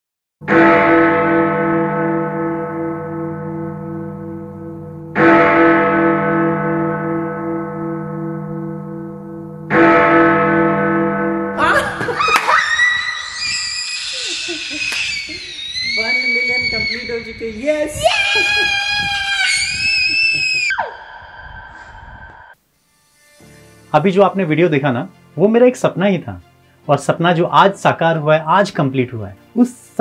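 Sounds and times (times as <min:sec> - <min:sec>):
deep bell ringing: 0:00.4 - 0:12.0
man and girl screaming and cheering: 0:11.6 - 0:17.2, 0:17.8 - 0:21.1.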